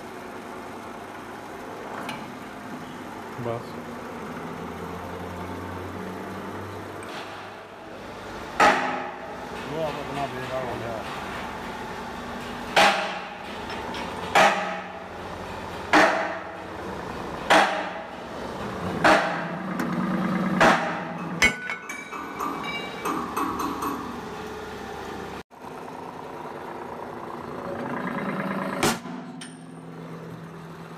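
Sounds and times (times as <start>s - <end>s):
machine hum: 0.0s - 30.9s
sharp metallic bangs: 12.7s - 13.6s, 14.3s - 15.1s, 15.9s - 16.7s, 17.4s - 18.3s, 19.0s - 19.8s, 20.4s - 24.2s
metal clinks and rattles: 21.2s - 24.2s.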